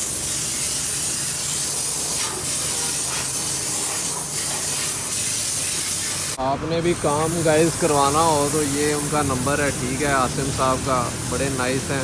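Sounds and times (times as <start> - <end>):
water spray hissing: 0.0 - 12.0.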